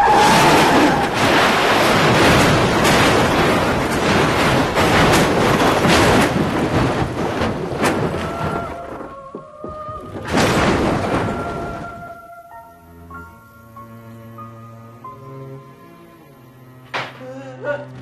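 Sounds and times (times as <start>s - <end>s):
van crashing and rolling over: 0.0s - 12.3s.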